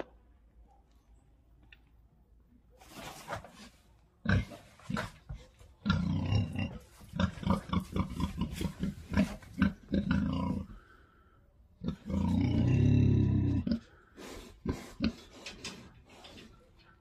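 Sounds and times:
pigs grunting: 4.2s - 10.9s, 11.8s - 15.9s.

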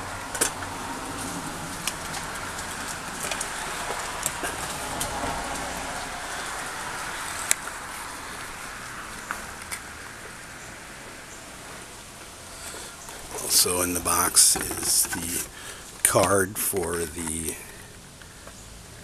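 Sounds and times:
steady background hiss: 5.8s - 19.0s.

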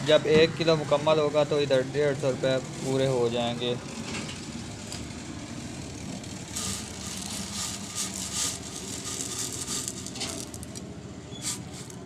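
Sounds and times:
dry grains pattering: 6.1s - 12.0s
plastic bag crinkling: 6.4s - 10.8s.

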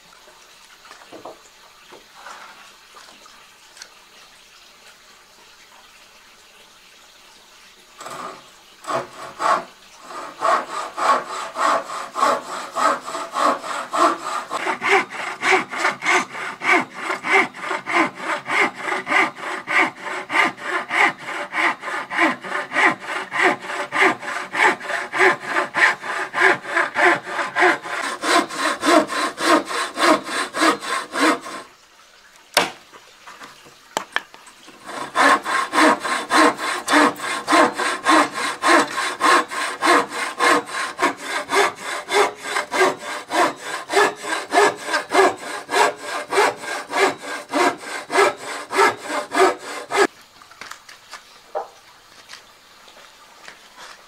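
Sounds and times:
hand saw cutting wood: 8.0s - 31.7s, 32.6s - 32.8s, 34.7s - 50.1s.

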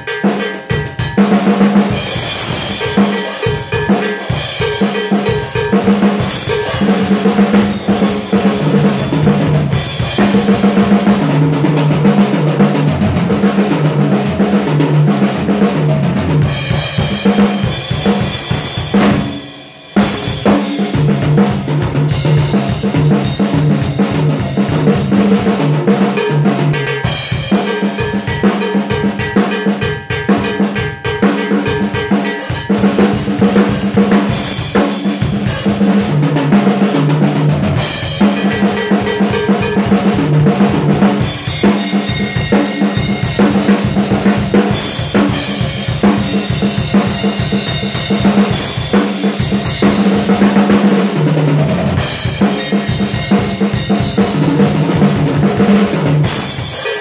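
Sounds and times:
drum kit playing: 0.0s - 57.0s.

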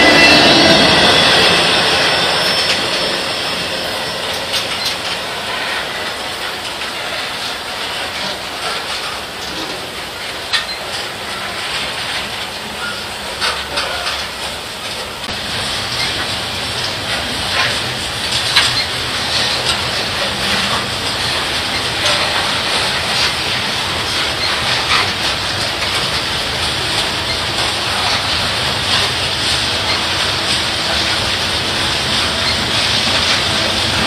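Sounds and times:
train wheels rumbling on rail: 0.0s - 34.0s
wheels clicking over rail joints: 0.0s - 34.0s.

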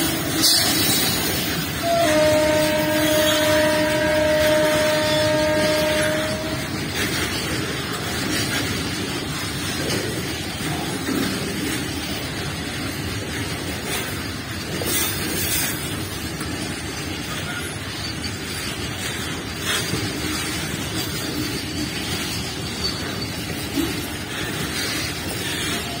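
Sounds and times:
freight wagons rolling on rails: 0.0s - 26.0s
loud wagon clatters: 0.0s - 26.0s.

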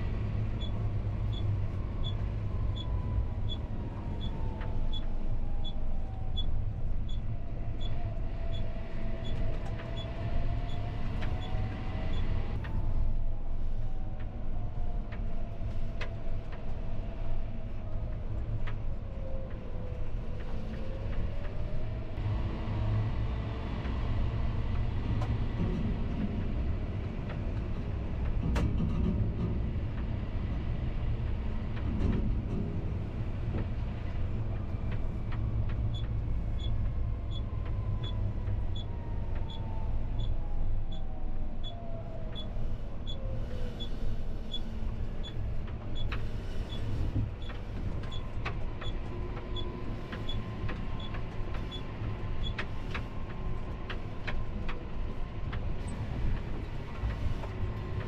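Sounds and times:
tractor engine rumble: 23.5s - 58.0s.

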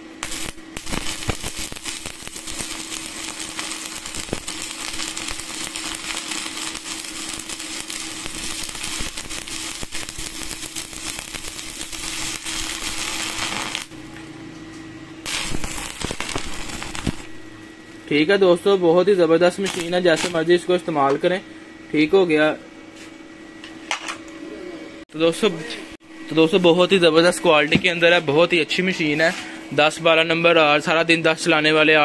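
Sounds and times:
welding arc crackling: 0.0s - 14.2s, 15.2s - 18.4s, 19.4s - 20.6s.

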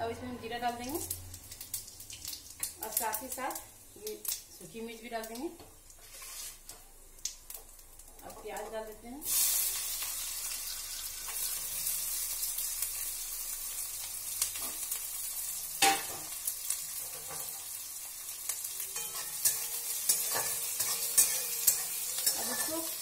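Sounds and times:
onions sizzling in oil: 0.4s - 23.0s
spatula scraping pan: 19.0s - 23.0s.

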